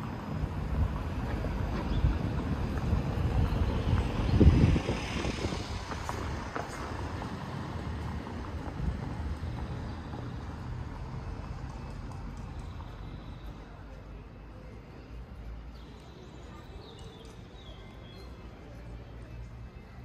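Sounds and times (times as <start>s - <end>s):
motor vehicle passing by: 0.0s - 13.3s.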